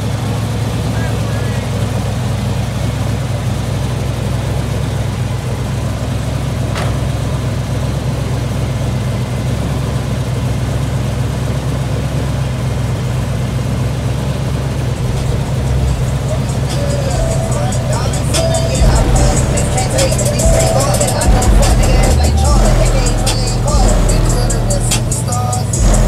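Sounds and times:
car engine idling: 0:00.0 - 0:26.0
short sharp sound: 0:15.0 - 0:25.2.

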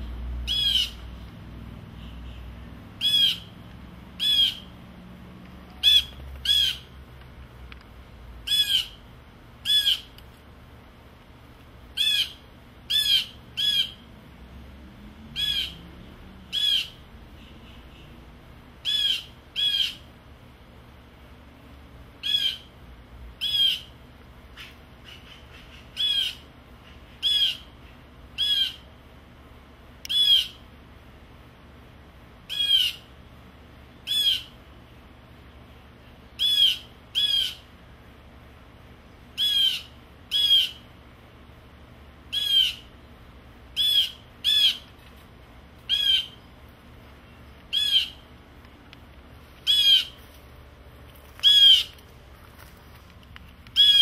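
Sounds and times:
blue jay calling: 0:00.4 - 0:01.3, 0:01.9 - 0:04.8, 0:05.7 - 0:07.0, 0:08.4 - 0:10.2, 0:11.9 - 0:14.1, 0:15.3 - 0:15.9, 0:16.5 - 0:18.2, 0:18.8 - 0:20.1, 0:22.2 - 0:22.8, 0:23.4 - 0:28.9, 0:30.1 - 0:30.7, 0:32.4 - 0:33.2, 0:34.0 - 0:34.7, 0:36.3 - 0:37.8, 0:39.3 - 0:40.9, 0:42.3 - 0:45.0, 0:45.8 - 0:46.6, 0:47.2 - 0:48.4, 0:49.6 - 0:50.3, 0:51.3 - 0:52.1, 0:53.7 - 0:54.0.

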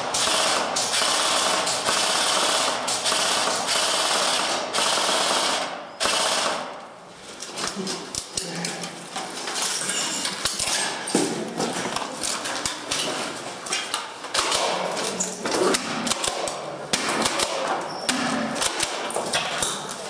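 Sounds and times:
airsoft gunfire: 0:00.0 - 0:06.7, 0:14.3 - 0:15.0, 0:15.7 - 0:19.1.

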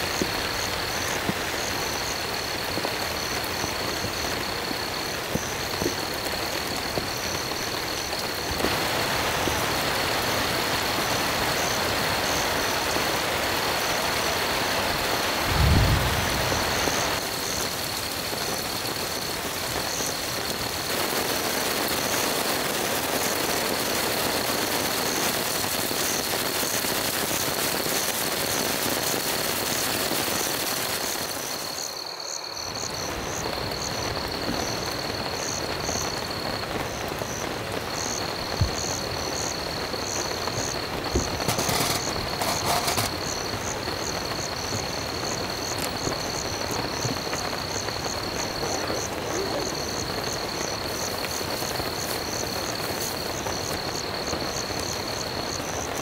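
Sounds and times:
insect chirping: 0:00.0 - 0:56.0
rain falling: 0:00.0 - 0:56.0
insect high trill: 0:38.7 - 0:43.7.

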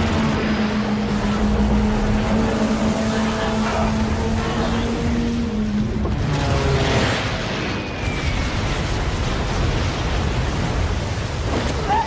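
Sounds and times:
explosions and battle noise: 0:05.7 - 0:12.0.

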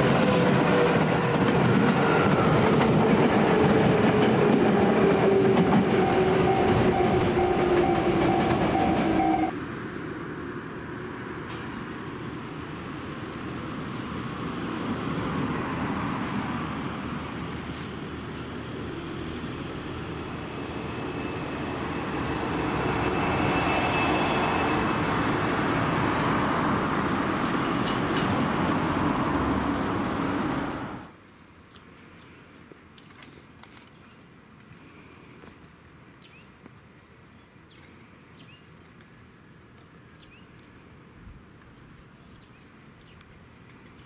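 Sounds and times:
electric train rumbling: 0:00.0 - 0:09.6, 0:11.5 - 0:31.1
faint high squeal: 0:20.8 - 0:25.2.

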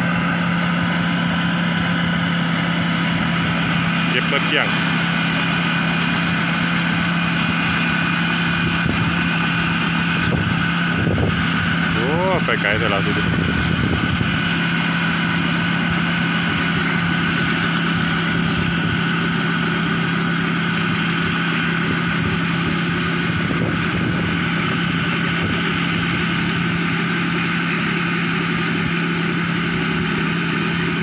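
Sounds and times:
harvester engine droning: 0:00.0 - 0:31.0.

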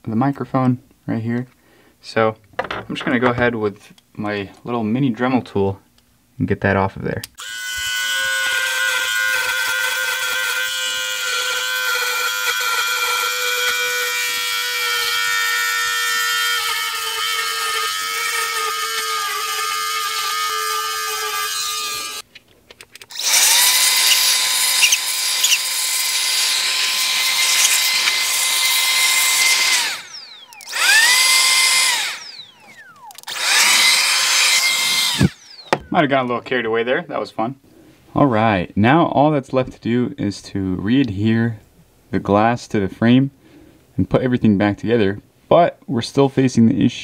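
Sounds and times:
rotary tool grinding glass: 0:07.4 - 0:22.2, 0:23.1 - 0:35.8
electric blower whooshing: 0:23.1 - 0:36.0.

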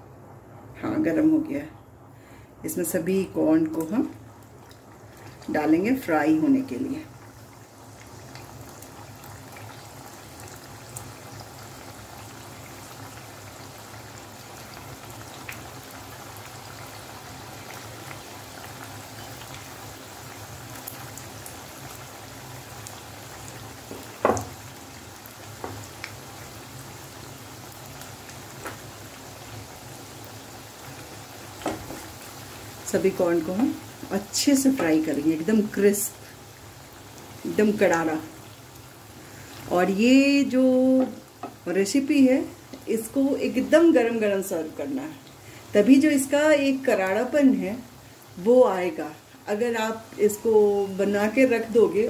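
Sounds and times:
food sizzling in hot oil: 0:02.8 - 0:52.0.

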